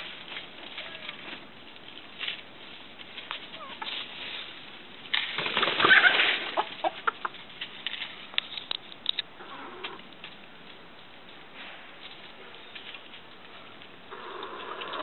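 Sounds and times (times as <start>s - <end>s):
chicken wings flapping: 5.1s - 7.2s.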